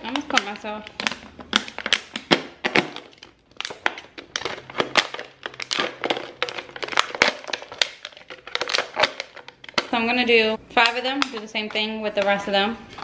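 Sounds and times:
plastic bottle crackling: 0.0s - 10.0s.

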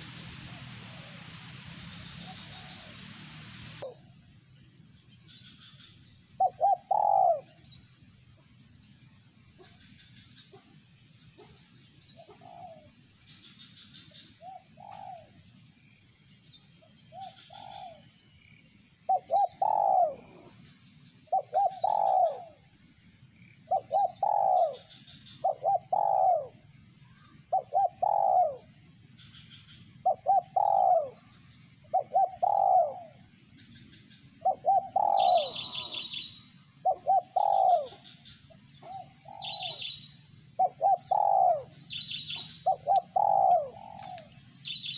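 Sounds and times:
dove cooing: 2.2s - 4.0s, 6.4s - 7.6s, 12.2s - 12.9s, 14.4s - 15.4s, 17.2s - 18.0s, 19.1s - 20.6s, 21.3s - 22.7s, 23.7s - 26.6s, 27.5s - 28.7s, 30.0s - 31.3s, 31.9s - 33.2s, 34.4s - 38.0s, 38.8s - 40.0s, 40.6s - 44.4s
small birds chirping: 8.9s - 22.7s, 23.3s - 44.9s.

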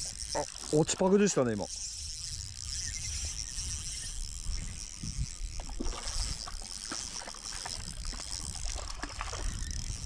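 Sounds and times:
fishing reel clicks: 0.0s - 10.0s
fish splashing: 2.3s - 10.0s.

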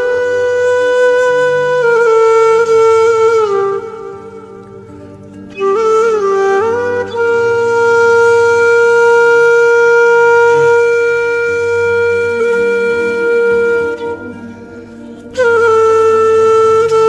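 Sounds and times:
wind instrument long note: 0.0s - 17.0s
soft low tones: 10.3s - 11.4s.

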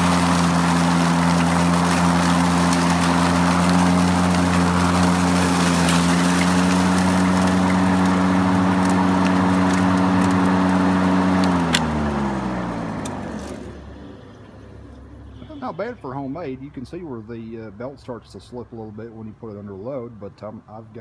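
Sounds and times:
electric lawn mower humming: 0.0s - 15.4s.

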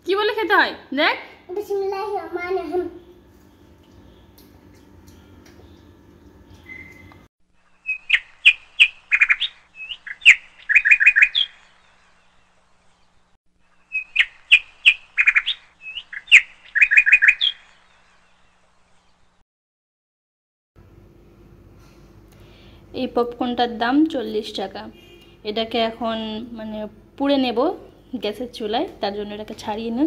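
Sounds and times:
birds chirping and trilling: 2.9s - 19.4s
faint room hum: 20.8s - 30.0s.

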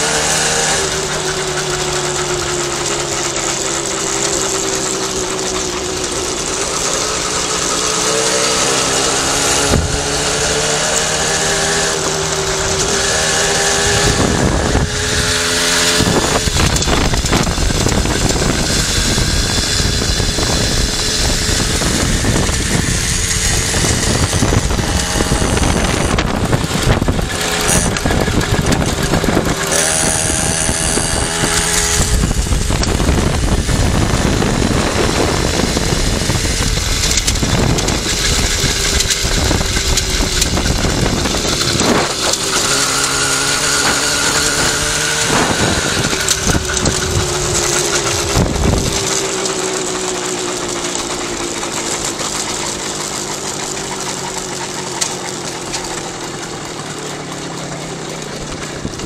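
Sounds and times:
moped engine running: 0.0s - 59.0s
wind noise on microphone: 6.9s - 52.0s.

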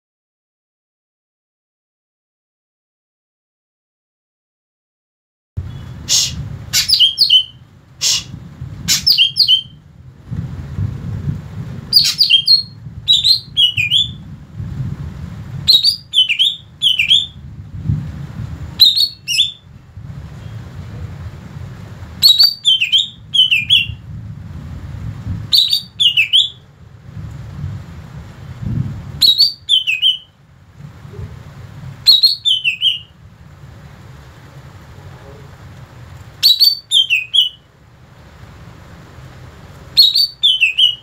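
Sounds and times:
steady low rumble: 5.6s - 29.7s, 30.3s - 32.4s, 33.0s - 36.4s
bird singing whistled notes: 5.7s - 8.3s, 8.9s - 9.8s, 11.9s - 14.2s, 15.7s - 17.4s, 18.8s - 19.7s, 22.2s - 24.0s, 25.5s - 26.6s, 29.2s - 30.4s, 32.0s - 33.2s, 36.4s - 37.7s, 40.0s - 41.0s.

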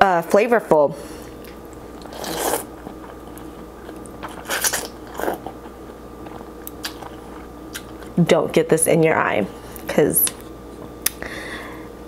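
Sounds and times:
person slurping noodles: 2.1s - 2.7s.

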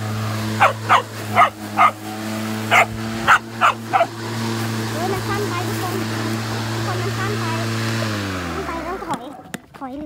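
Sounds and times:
electric lawn mower motor hum: 0.0s - 9.6s
dog barking: 0.6s - 2.0s, 2.7s - 4.1s.

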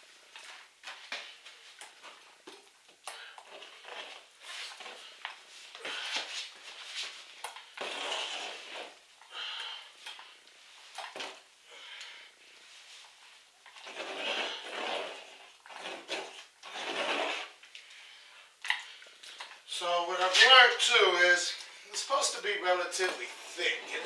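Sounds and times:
paint roller strokes: 3.5s - 9.0s, 13.7s - 17.6s.

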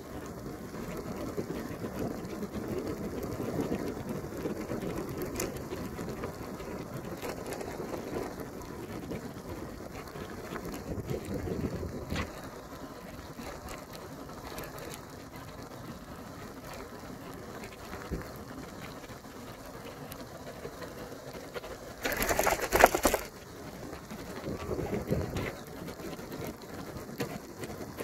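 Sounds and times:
rain: 0.0s - 28.0s
loud crackling rub: 21.7s - 23.3s.

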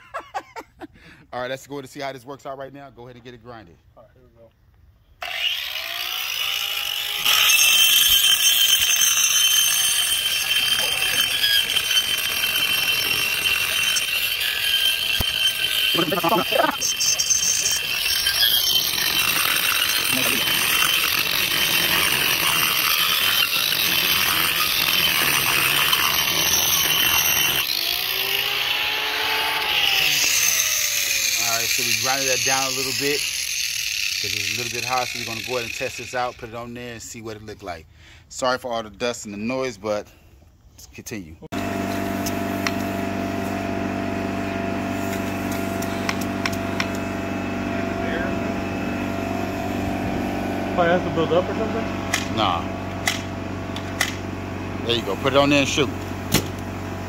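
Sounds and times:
angle grinder grinding concrete: 5.2s - 37.5s, 41.5s - 57.0s
air compressor motor running: 10.1s - 35.6s, 41.6s - 57.0s.

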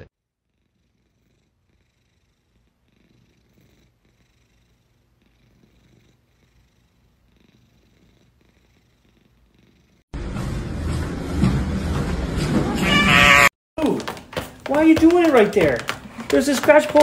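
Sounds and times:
cat purring: 0.4s - 10.1s.

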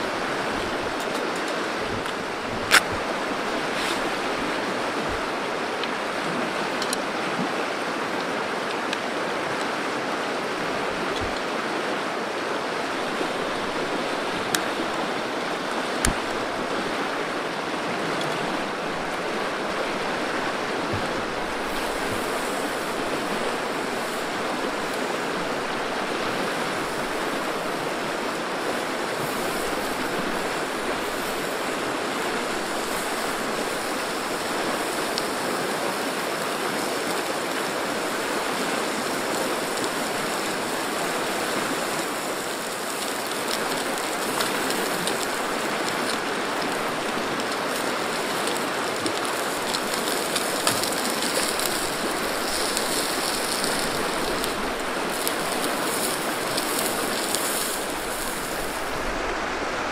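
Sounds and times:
river rushing over rocks: 0.0s - 59.9s.

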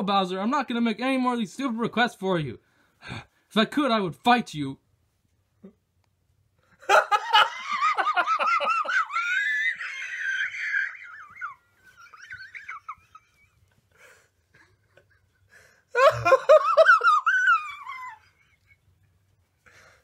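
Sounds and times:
person laughing hard: 6.8s - 18.9s.

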